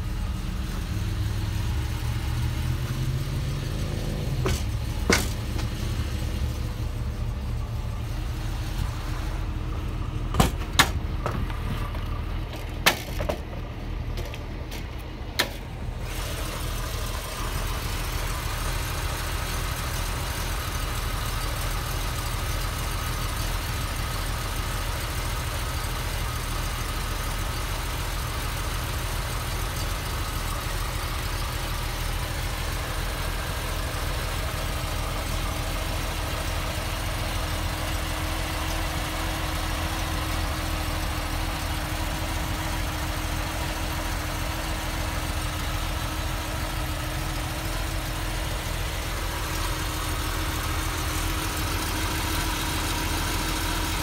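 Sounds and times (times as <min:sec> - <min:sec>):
car engine idling: 0:00.0 - 0:54.0
sharp engine knocks: 0:04.4 - 0:06.0, 0:10.2 - 0:15.7.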